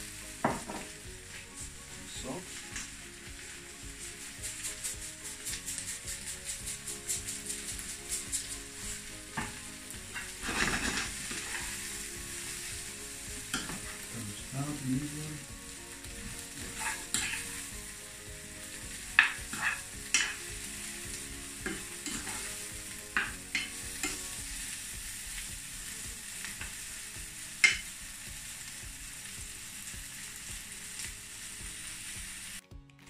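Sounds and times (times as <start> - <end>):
vegetables sizzling in a skillet: 0.0 - 32.6.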